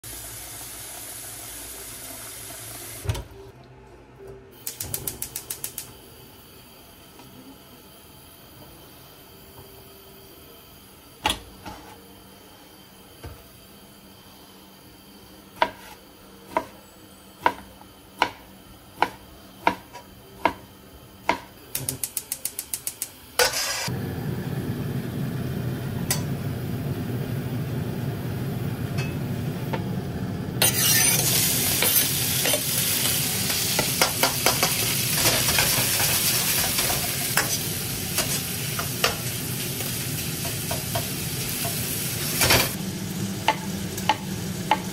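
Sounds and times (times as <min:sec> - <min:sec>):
bacon sizzling in a wok: 0:00.0 - 0:03.0, 0:30.3 - 0:44.9.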